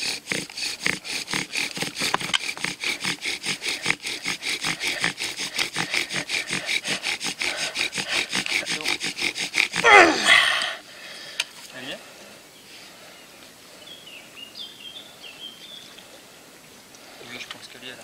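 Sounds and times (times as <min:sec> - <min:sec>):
wooden spindle rasping: 0:00.0 - 0:10.7.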